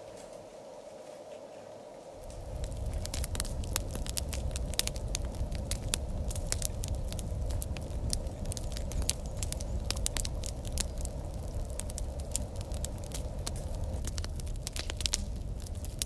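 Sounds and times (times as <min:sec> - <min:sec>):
wood fire crackling: 0:01.8 - 0:16.0
low steady rumble: 0:02.2 - 0:16.0.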